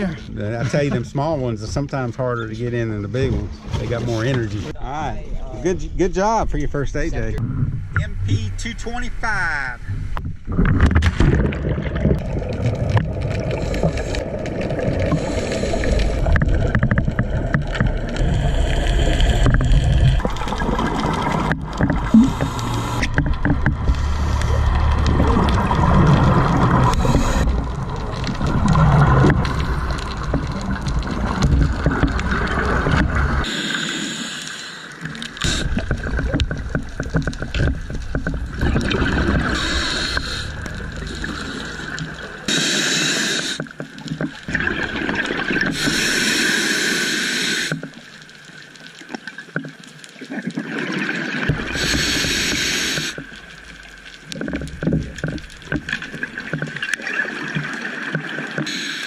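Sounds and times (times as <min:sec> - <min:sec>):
bubbles gurgling: 0:10.4 - 0:33.5, 0:35.0 - 0:42.6, 0:43.6 - 0:46.4, 0:50.2 - 0:58.6
underwater regulator breathing: 0:15.0 - 0:16.4, 0:18.0 - 0:20.2, 0:22.0 - 0:25.3, 0:26.8 - 0:27.6, 0:33.4 - 0:36.2, 0:38.8 - 0:43.8, 0:45.7 - 0:47.9, 0:51.6 - 0:53.2.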